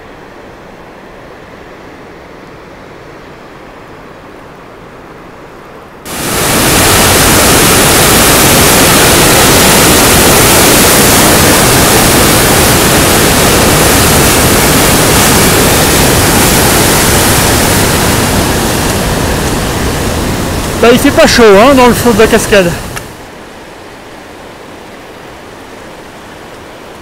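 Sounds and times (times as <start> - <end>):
distant water hiss: 0.0 - 27.0
water roaring over boulders: 6.0 - 27.0.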